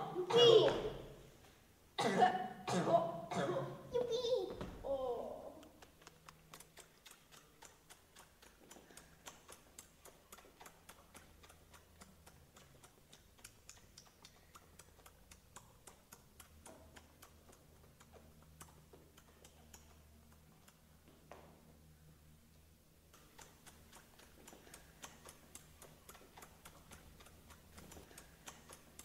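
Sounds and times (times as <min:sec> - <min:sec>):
steady low hum: 0:00.0 - 0:29.0.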